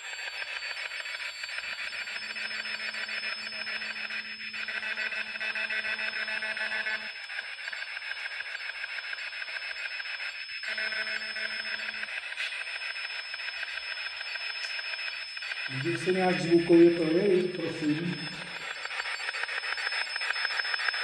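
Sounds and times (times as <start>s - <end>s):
pulsing radio hiss: 15.6s - 18.6s.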